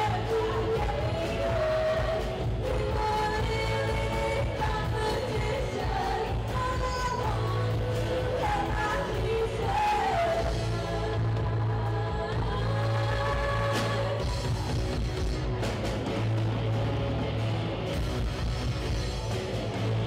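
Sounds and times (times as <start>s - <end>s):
bass guitar low notes: 10.4s - 20.0s
rock band playing: 13.3s - 20.0s.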